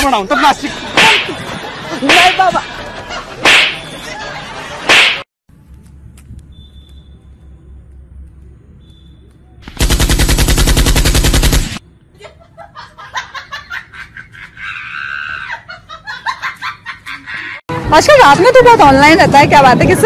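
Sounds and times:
rapid machine-gun fire: 9.6s - 11.8s.

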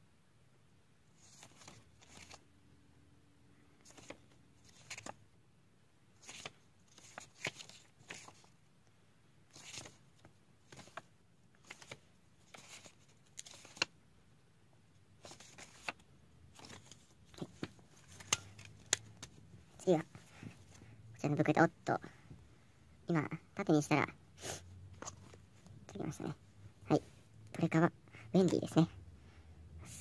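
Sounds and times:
pages rustling and flicking: 1.2s - 2.5s, 3.8s - 5.2s, 6.2s - 8.6s, 9.5s - 14.0s, 15.2s - 20.9s, 24.9s - 26.2s.

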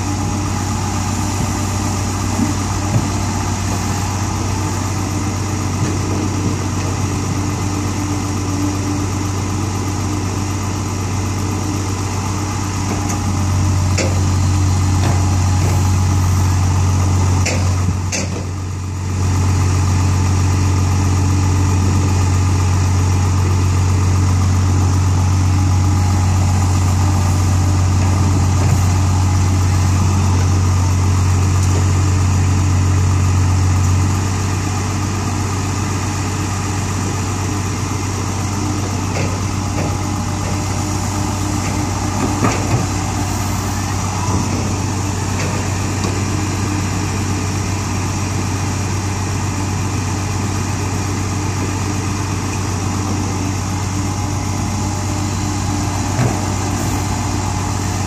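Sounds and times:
diesel engines running: 0.0s - 58.0s.

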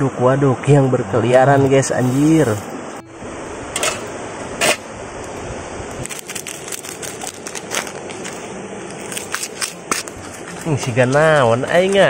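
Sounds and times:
metal pan lid clinking: 3.8s - 4.8s.

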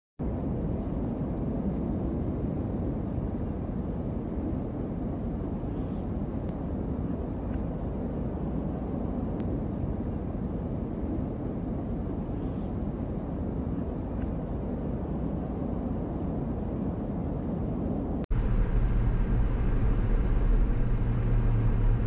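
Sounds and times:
wildfire roaring: 18.3s - 22.0s.

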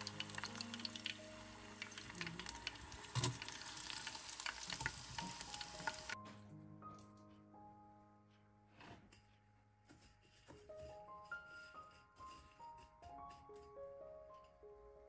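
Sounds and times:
chicken deep-frying in oil: 0.0s - 6.2s
soft background music: 0.0s - 15.0s.

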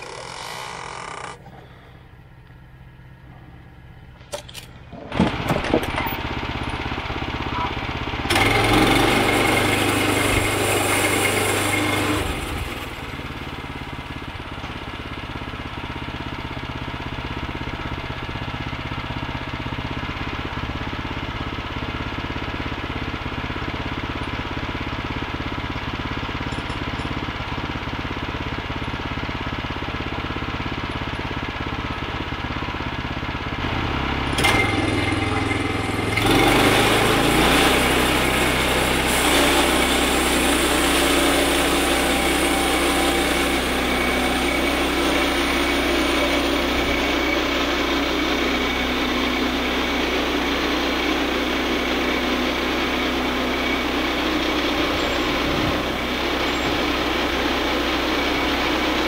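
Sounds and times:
gasoline engine idling: 0.0s - 8.4s.

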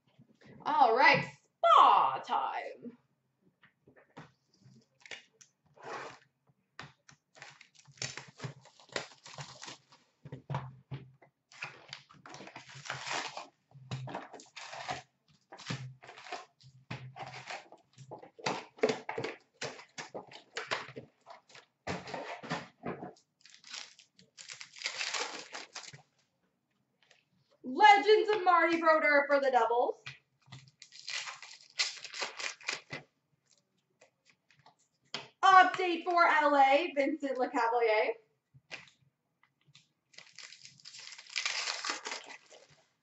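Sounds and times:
card packs ripped open: 7.3s - 10.0s, 11.6s - 13.6s, 14.4s - 16.6s, 17.2s - 17.6s, 23.4s - 26.0s, 30.6s - 33.0s, 40.1s - 42.8s
plastic wrapping crinkling: 7.3s - 10.1s, 11.5s - 18.4s, 23.2s - 26.1s, 30.5s - 33.6s, 39.7s - 42.9s.

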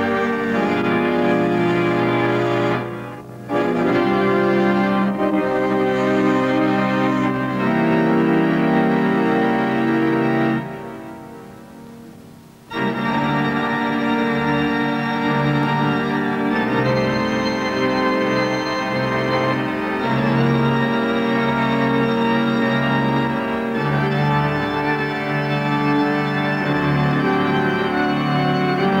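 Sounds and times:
organ playing slow chords: 0.0s - 29.0s.

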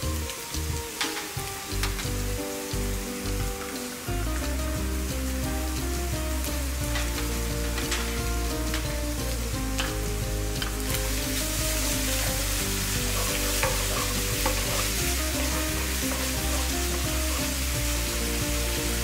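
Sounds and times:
food sizzling in a frying pan: 0.0s - 19.0s.

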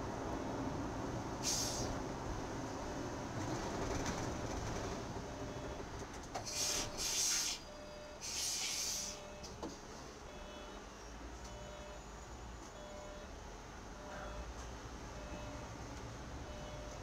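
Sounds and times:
bus engine and road noise: 0.0s - 17.0s
air brake hisses: 1.4s - 2.0s, 6.4s - 9.2s
faint short beeps: 9.0s - 9.6s, 11.5s - 13.3s, 14.0s - 14.5s, 15.2s - 15.7s, 16.5s - 17.0s.

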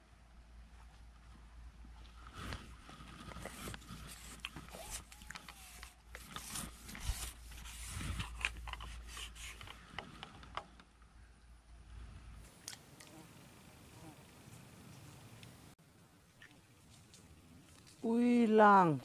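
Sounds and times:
fishing pole scraping and clicking: 2.3s - 10.9s.

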